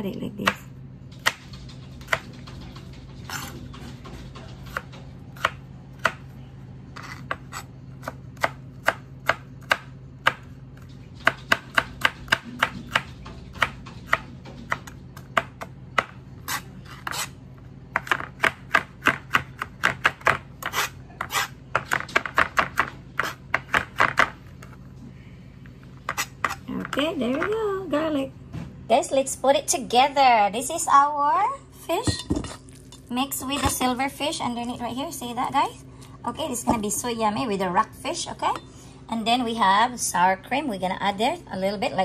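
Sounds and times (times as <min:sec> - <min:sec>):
knife chopping on cutting board: 0:11.2 - 0:17.3, 0:17.9 - 0:24.7, 0:26.1 - 0:27.0.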